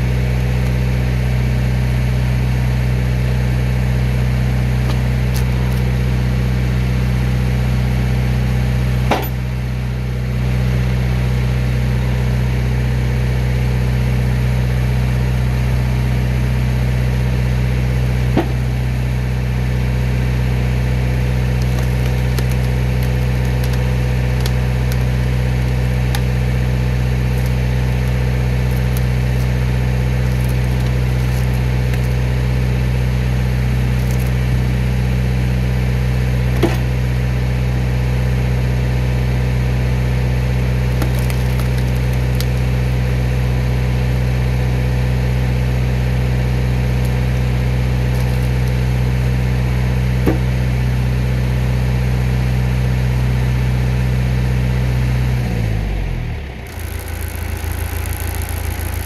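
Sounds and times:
tractor engine running: 0.0s - 52.0s, 55.8s - 59.0s
logs splitting with sharp cracks: 4.7s - 6.0s, 20.7s - 34.9s, 40.8s - 43.4s, 46.7s - 49.0s, 56.7s - 59.0s.

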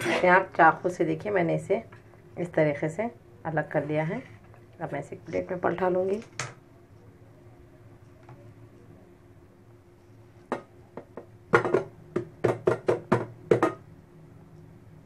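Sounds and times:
knocking on metal cake pan: 10.5s - 13.8s.

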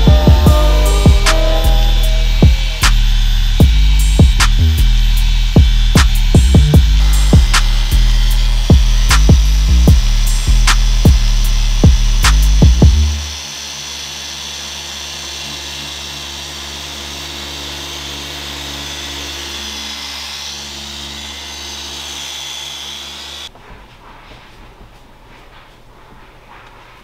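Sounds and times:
beat-driven music: 0.0s - 13.3s
polisher humming with a hiss: 0.0s - 20.0s.

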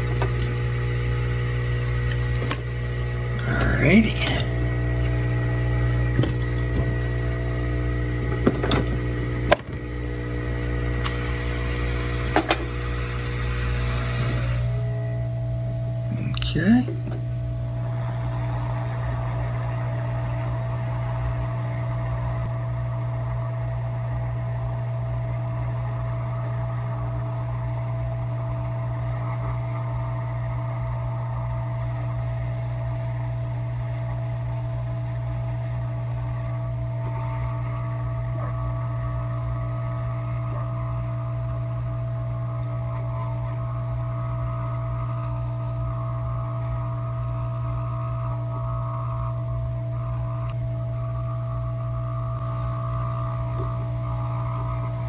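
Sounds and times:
hot air station hissing: 0.0s - 14.9s.

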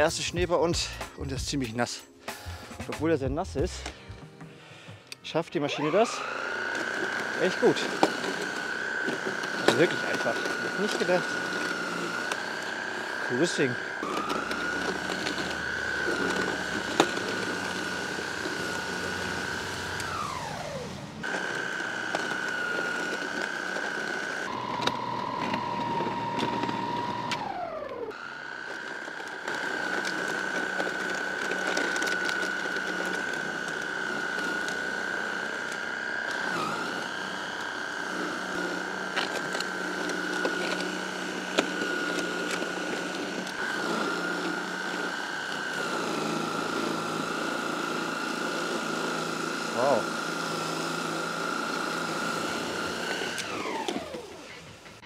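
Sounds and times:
snow thrower motor whining: 0.0s - 1.0s, 3.5s - 55.0s.

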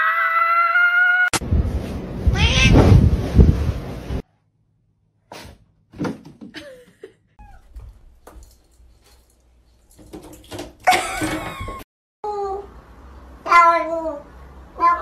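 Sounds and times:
knocks and thumps: 5.9s - 6.6s.

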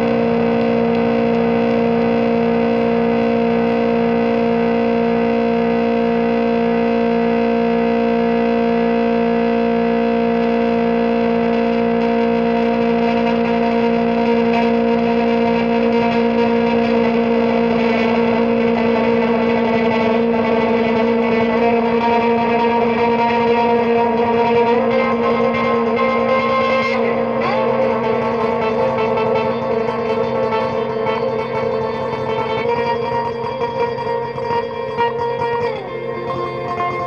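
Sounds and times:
amplified drone: 0.0s - 37.0s
low pulse: 0.0s - 37.0s
plucked strings: 0.0s - 37.0s.

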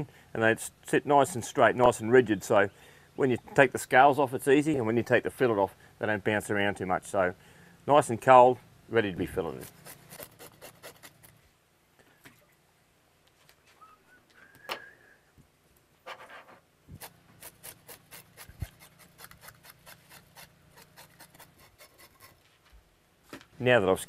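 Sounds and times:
fish scales being scraped: 9.4s - 11.4s, 17.0s - 22.4s.

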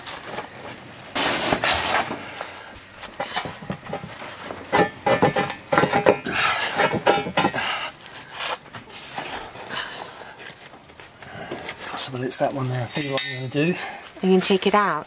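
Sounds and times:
stone clinking against steel: 12.9s - 13.6s.

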